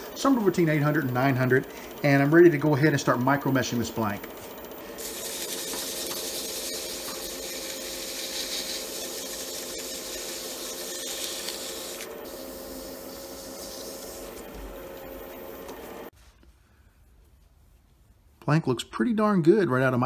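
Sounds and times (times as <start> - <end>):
lathe motor humming: 0.0 - 16.1
abrasive pad sanding hiss: 5.0 - 14.3.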